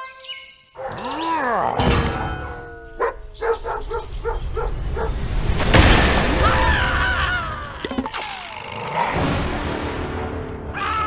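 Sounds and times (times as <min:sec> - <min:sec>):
music: 0:09.1 - 0:11.0.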